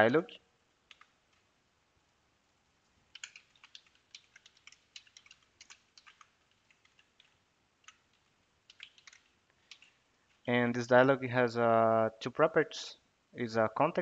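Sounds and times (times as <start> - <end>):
keyboard typing: 0.8 - 1.4, 3.1 - 10.0.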